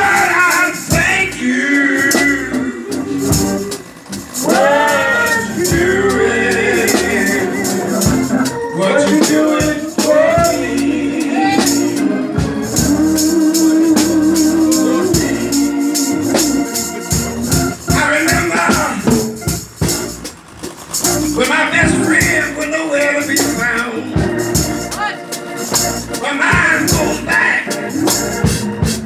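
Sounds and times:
hand percussion shaking: 0:00.0 - 0:12.1, 0:12.7 - 0:29.0
man singing into a microphone: 0:00.0 - 0:16.4, 0:21.4 - 0:24.2, 0:26.2 - 0:28.0
church organ: 0:00.0 - 0:29.0.

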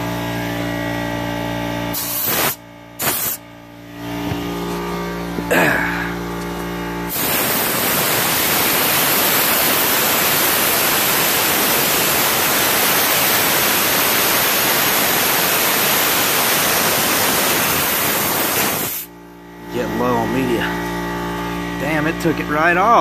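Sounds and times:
abrasive blaster hissing: 0:01.9 - 0:03.4, 0:07.0 - 0:19.1.

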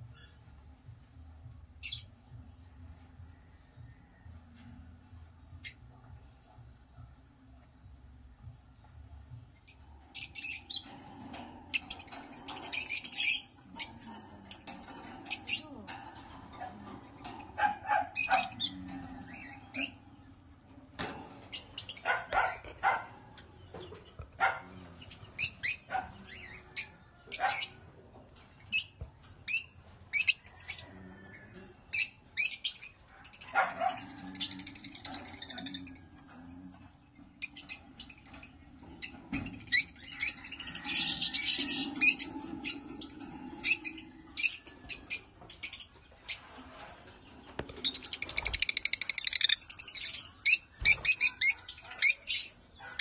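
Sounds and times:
lovebirds calling: 0:09.5 - 0:14.0, 0:15.2 - 0:20.0, 0:37.1 - 0:53.0
lovebirds chattering: 0:09.5 - 0:20.1, 0:31.9 - 0:53.0
parrots chirping and screeching: 0:09.5 - 0:31.3, 0:31.9 - 0:53.0.

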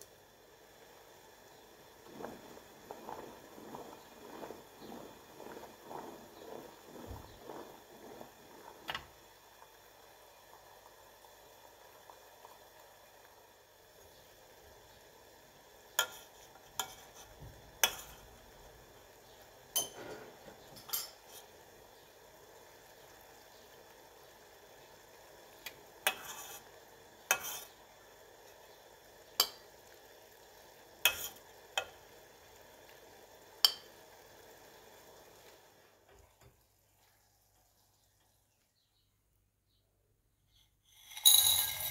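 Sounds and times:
syrup bubbling: 0:00.0 - 0:38.6
spoons clinking on china plate: 0:19.8 - 0:20.2, 0:20.8 - 0:21.4, 0:40.9 - 0:41.9.

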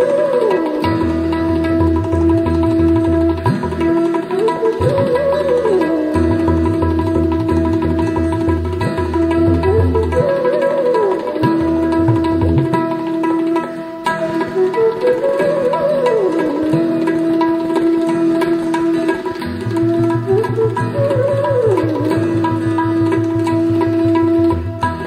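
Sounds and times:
sliding melodic line: 0:00.0 - 0:25.0
tabla drumming: 0:00.0 - 0:25.0.

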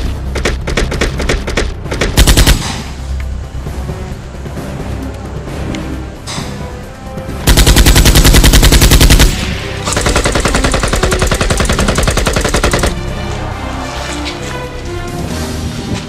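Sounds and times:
rapid automatic gunfire: 0:00.4 - 0:02.8, 0:07.5 - 0:13.0.

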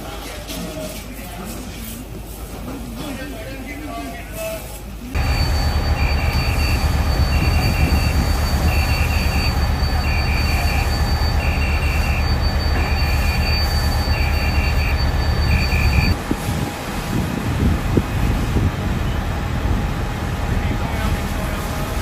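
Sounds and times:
electronic alarm beeping: 0:05.2 - 0:16.2
high whine: 0:05.2 - 0:19.3
low engine-like rumble: 0:05.2 - 0:22.0.

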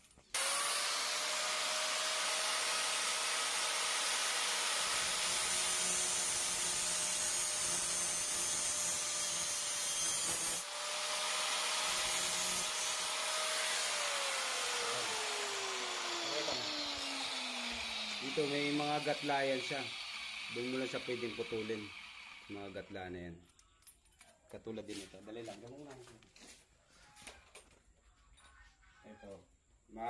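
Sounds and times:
angle grinder grinding metal: 0:00.4 - 0:23.0.

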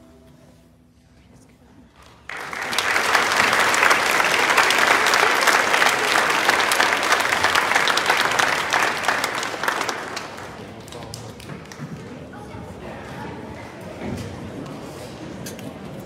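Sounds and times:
audience applause: 0:02.3 - 0:12.3.

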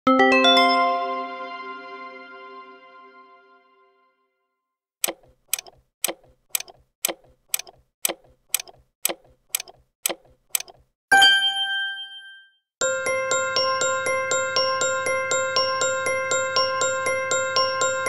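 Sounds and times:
clock ticking: 0:05.0 - 0:10.9
bright bell-like ding: 0:11.2 - 0:12.6.

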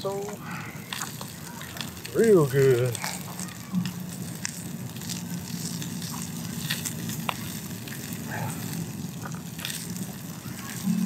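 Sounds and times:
campfire crackling and popping: 0:00.0 - 0:11.0
meat sizzling on grill: 0:00.0 - 0:11.0.

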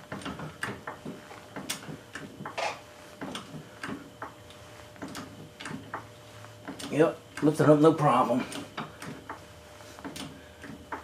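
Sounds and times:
floor jack clicks and knocks: 0:00.0 - 0:04.4.

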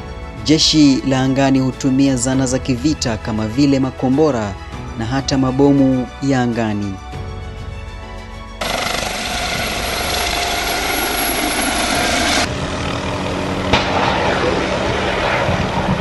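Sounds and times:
helicopter in flight droning: 0:07.1 - 0:16.0
helicopter turbine and rotor: 0:07.1 - 0:16.0.

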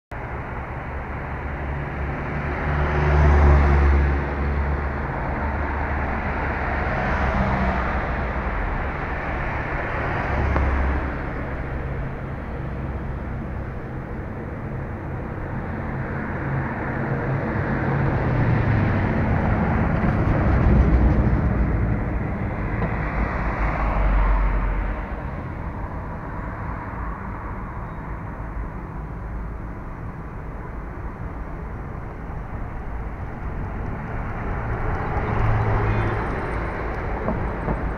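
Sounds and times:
steady traffic hum: 0:00.1 - 0:37.9
cars driving past: 0:00.2 - 0:37.9.

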